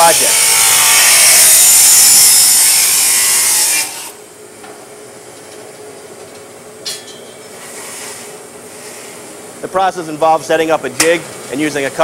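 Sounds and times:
chop saw cutting steel: 0.0 - 4.2.

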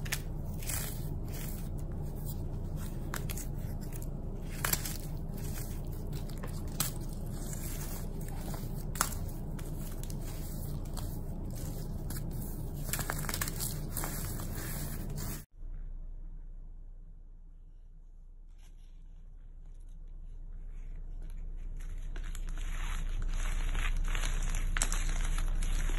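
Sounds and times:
dry clay crunching in hands: 0.0 - 15.4, 21.8 - 25.9.

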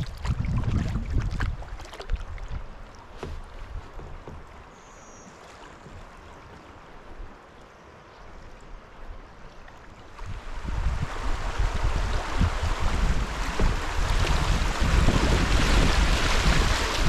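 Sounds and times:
wind buffeting microphone: 0.0 - 4.7, 10.2 - 17.0
river water running: 0.0 - 17.0.

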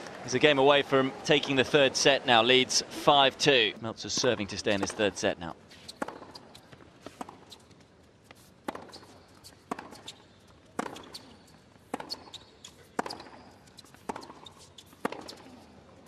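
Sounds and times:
tennis ball struck by rackets: 5.8 - 7.6, 8.6 - 15.6.

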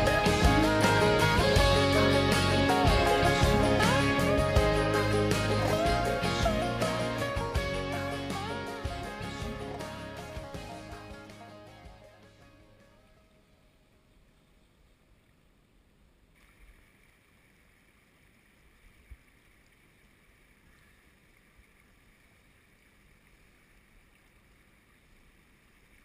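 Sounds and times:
brook running over stones: 16.4 - 26.0.

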